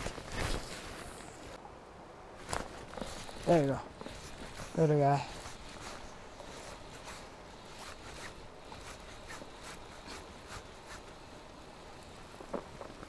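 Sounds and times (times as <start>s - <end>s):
steady background hiss: 0.0s - 13.0s
fishing reel ticking: 2.9s - 12.8s.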